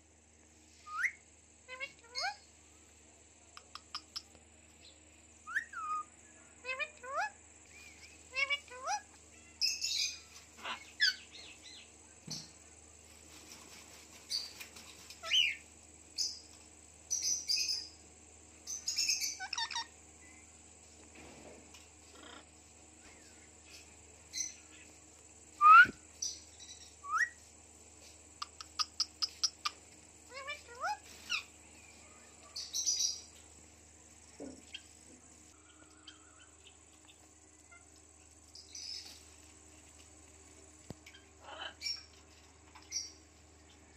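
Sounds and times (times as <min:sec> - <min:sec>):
parakeets chirping: 0:01.7 - 0:02.4, 0:03.6 - 0:04.3, 0:07.9 - 0:11.9, 0:18.6 - 0:20.0, 0:28.4 - 0:33.3
parakeets chirping and squawking: 0:19.0 - 0:19.9.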